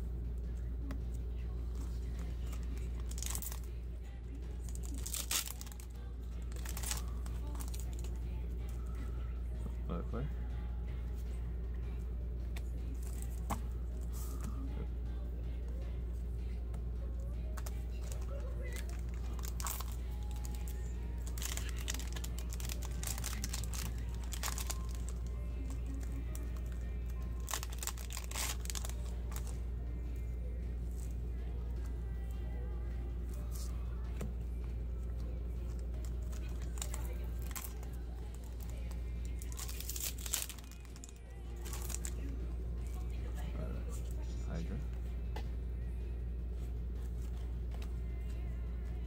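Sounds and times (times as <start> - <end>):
steady low hum: 0.0 - 49.0
plastic wrapper crinkling: 2.5 - 3.7, 4.7 - 8.1, 17.6 - 29.5, 35.7 - 42.3
cards rustling: 4.6 - 8.2, 17.5 - 29.6, 35.1 - 42.3.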